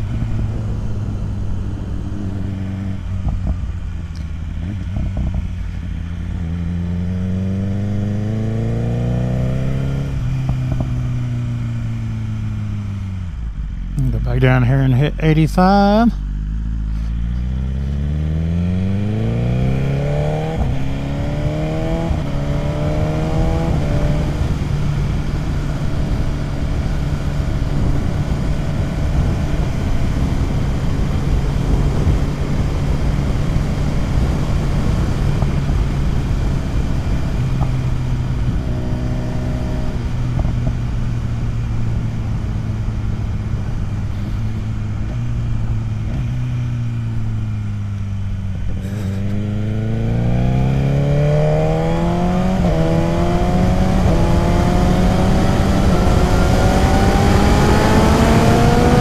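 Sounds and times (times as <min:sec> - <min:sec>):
wind noise: 0:00.0 - 0:05.5, 0:18.7 - 0:46.3, 0:48.6 - 0:59.0
motorcycle engine accelerating through upshifts: 0:00.0 - 0:14.0, 0:16.2 - 0:59.0.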